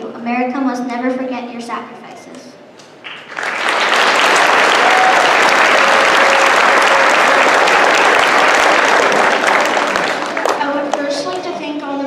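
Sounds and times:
crowd clapping: 3.0 - 11.8.

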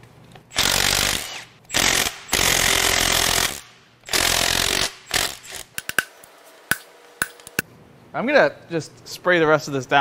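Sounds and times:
impact wrench hammering: 0.5 - 6.1, 6.7 - 7.6.

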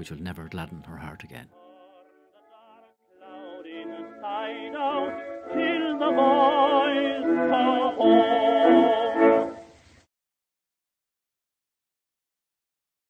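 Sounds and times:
operatic voice singing: 1.3 - 9.4.

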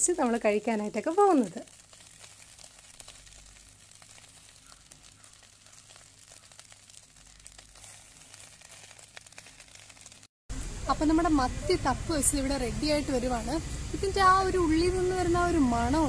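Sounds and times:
crackling and sizzling in pot: 0.0 - 16.0
steady hiss: 0.1 - 15.8
small ticks: 0.2 - 10.3.

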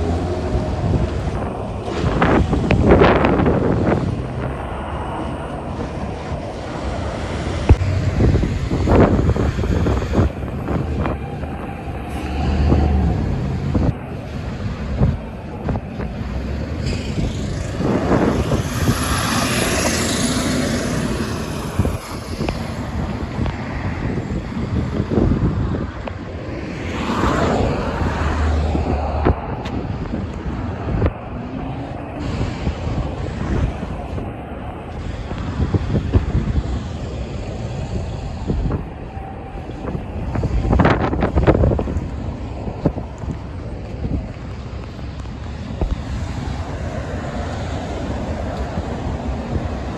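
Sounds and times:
cars driving past: 0.0 - 49.9
road traffic: 0.0 - 49.9
wind buffeting microphone: 0.0 - 49.9
truck driving past: 11.9 - 15.1.

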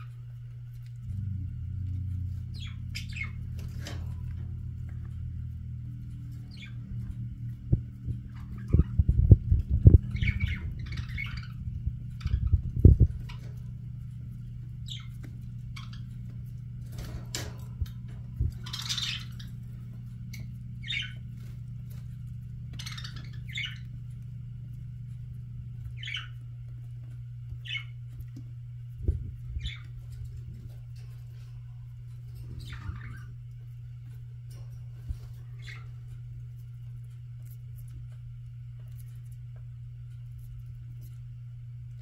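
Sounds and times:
steady low hum: 0.0 - 42.0
budgerigars chirping: 2.0 - 4.9, 6.0 - 13.7, 14.4 - 24.3, 25.8 - 26.5, 27.5 - 28.0, 29.4 - 33.5, 34.9 - 36.3.

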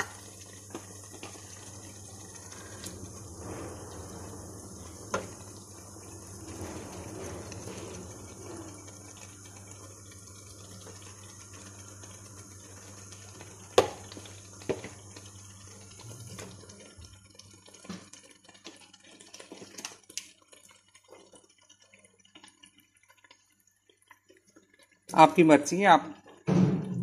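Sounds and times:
fish sizzling in a frying pan: 0.0 - 26.5
small crackles: 6.5 - 25.1.

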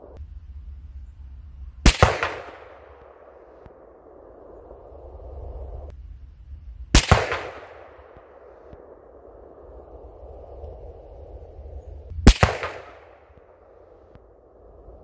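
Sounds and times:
rifle shots with rolling echo: 1.8 - 5.7, 6.9 - 10.6, 12.1 - 15.0.

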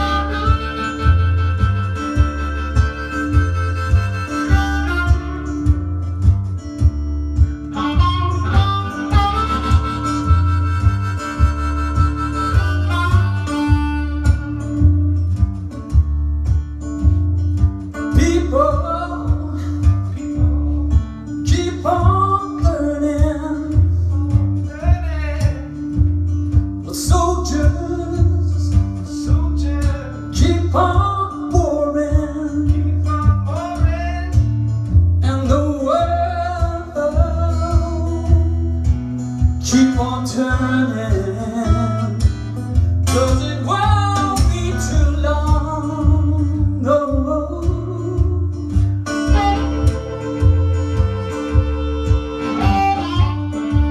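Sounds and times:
acoustic guitar rhythm: 0.0 - 53.9
person singing: 18.1 - 24.0, 43.1 - 53.9.

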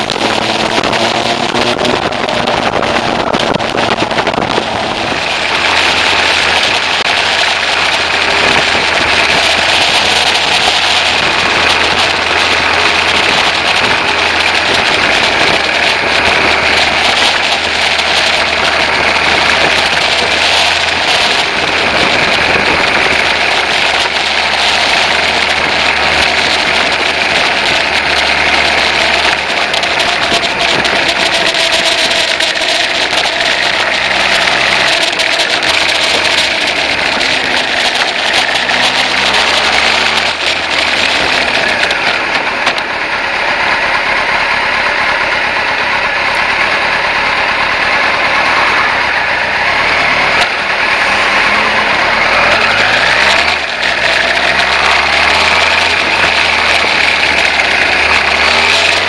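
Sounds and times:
wind rushing on microphone: 0.0 - 42.9
motorcycle engine running: 0.0 - 59.0.

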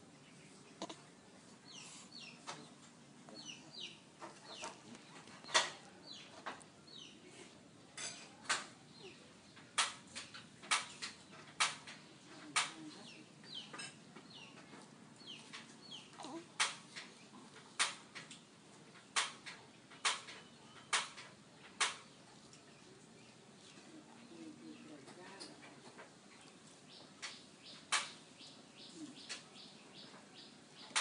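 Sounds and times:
birds chirping: 0.0 - 7.4, 8.2 - 17.9, 18.9 - 31.0.

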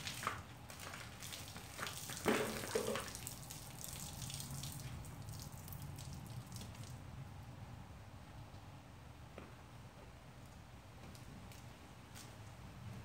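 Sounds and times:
water splashing and dripping: 0.0 - 7.0.

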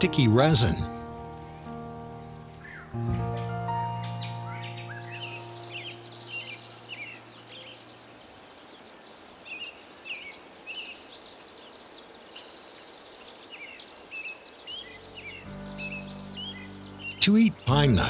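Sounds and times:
small birds chirping: 0.0 - 18.0
soft steady hiss: 4.3 - 18.0.

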